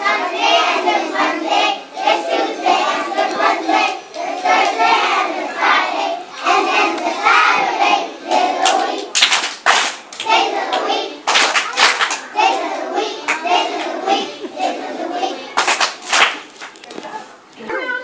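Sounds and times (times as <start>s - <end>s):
children singing: 0.0s - 9.2s, 10.2s - 16.1s
hand clapping: 8.3s - 12.7s, 15.6s - 16.9s.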